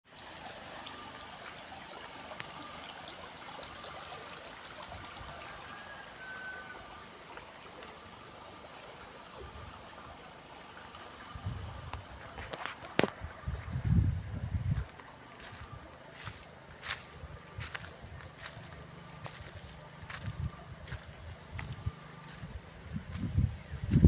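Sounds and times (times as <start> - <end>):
forest stream rushing: 0.1 - 24.0.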